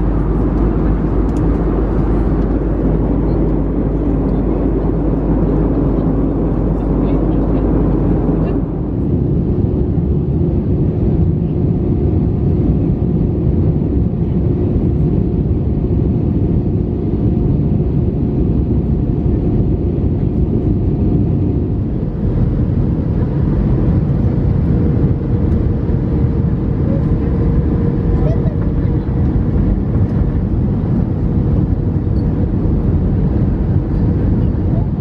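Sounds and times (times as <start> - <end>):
airplane cabin airflow and engine: 0.0 - 35.0.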